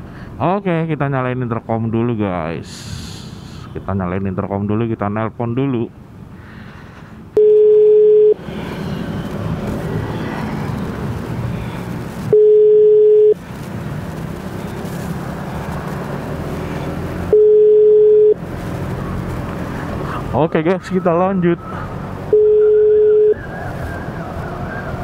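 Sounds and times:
engine and road noise: 0:00.0 - 0:25.0
phone ringback beep: 0:07.4 - 0:08.4, 0:12.3 - 0:13.4, 0:17.3 - 0:18.4, 0:22.3 - 0:23.4.

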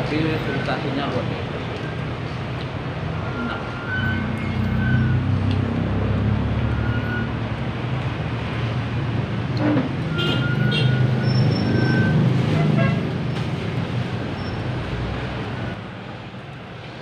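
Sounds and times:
vehicle engine passing: 0:03.0 - 0:10.1.

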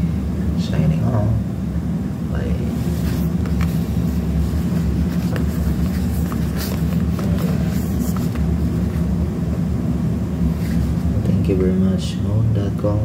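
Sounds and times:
low machine rumble: 0:00.0 - 0:13.0
boxes and mailer rustling: 0:02.8 - 0:09.2.

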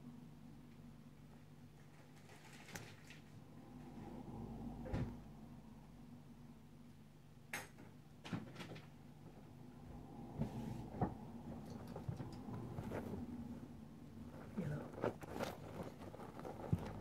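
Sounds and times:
faint steady hum: 0:00.0 - 0:17.0
small knocks and clicks: 0:11.0 - 0:12.8.

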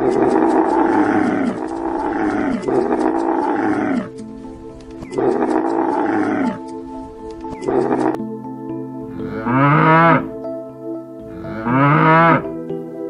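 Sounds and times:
camel groaning: 0:00.0 - 0:08.2, 0:11.3 - 0:12.5
background music: 0:00.0 - 0:13.0.

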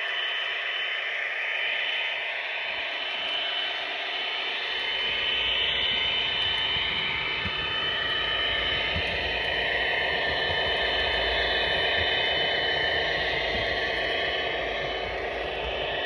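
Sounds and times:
thin high whine: 0:00.0 - 0:16.0
model train rolling on track: 0:04.8 - 0:16.0.

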